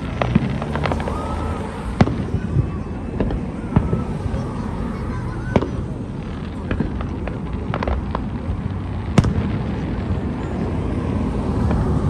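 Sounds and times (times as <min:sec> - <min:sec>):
firework bang: 0:00.0 - 0:12.0
fireworks popping and crackling: 0:00.0 - 0:12.0.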